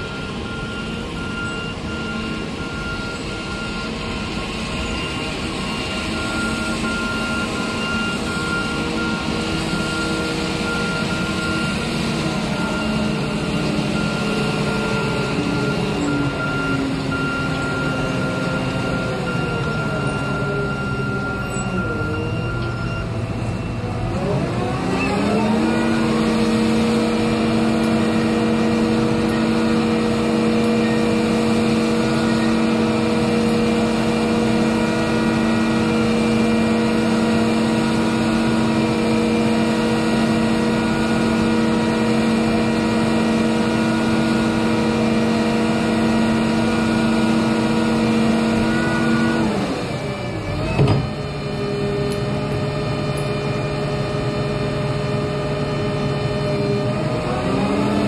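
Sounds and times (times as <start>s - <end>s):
clunk: 50.7s - 51.2s.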